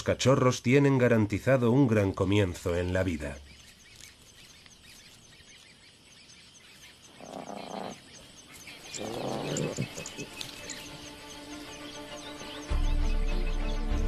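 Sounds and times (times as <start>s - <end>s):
faint high chirping: 1.7s - 14.0s
lions calling: 7.0s - 8.1s, 8.8s - 11.5s.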